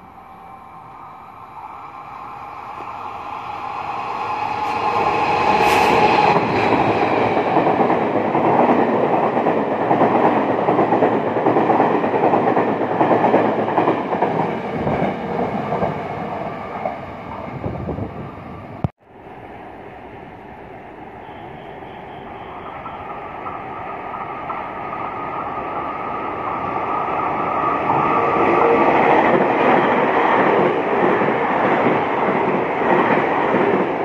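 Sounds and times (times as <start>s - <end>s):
train passing on rails: 0.0s - 34.0s.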